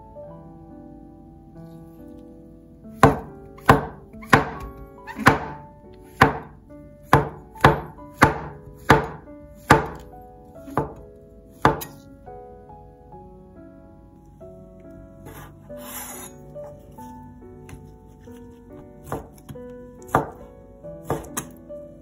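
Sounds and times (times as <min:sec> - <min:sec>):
light background music: 0:00.0 - 0:22.0
knife chopping on wooden board: 0:03.0 - 0:05.6, 0:06.2 - 0:11.0, 0:11.6 - 0:12.0, 0:19.0 - 0:20.4, 0:21.0 - 0:21.5.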